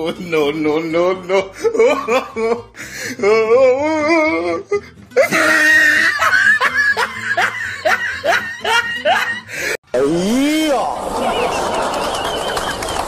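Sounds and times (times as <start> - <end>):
background music: 0.0 - 13.0
person laughing hard: 1.3 - 2.8, 5.2 - 9.8.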